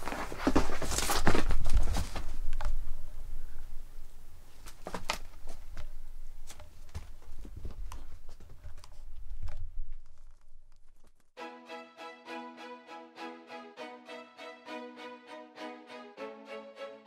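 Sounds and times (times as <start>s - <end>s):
background music: 11.4s - 17.0s.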